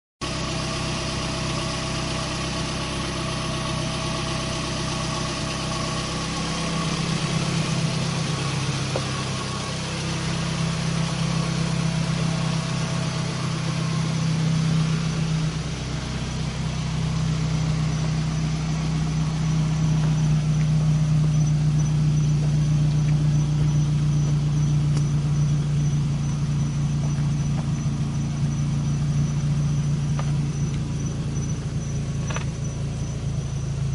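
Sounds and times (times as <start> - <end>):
loud distorted subwoofer bass notes: 3.8 - 33.9.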